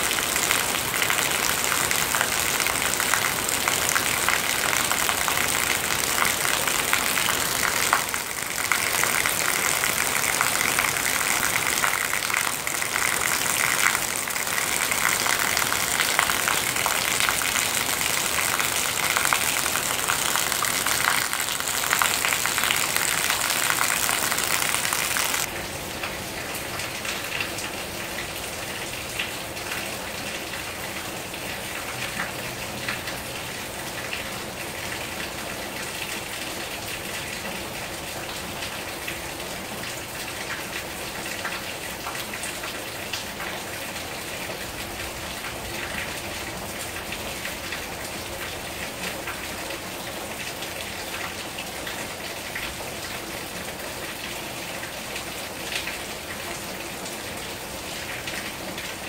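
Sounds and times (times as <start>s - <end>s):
close raindrop hits: 0.0s - 25.6s
rain on pavement and grass: 0.0s - 59.0s.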